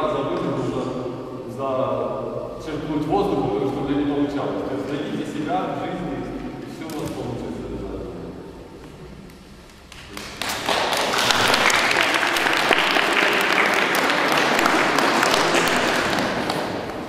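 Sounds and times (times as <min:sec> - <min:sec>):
children applauding: 0:10.0 - 0:17.0.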